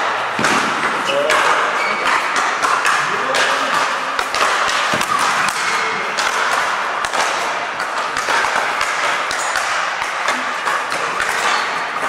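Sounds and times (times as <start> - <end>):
rackets hitting balls: 0.0 - 12.0.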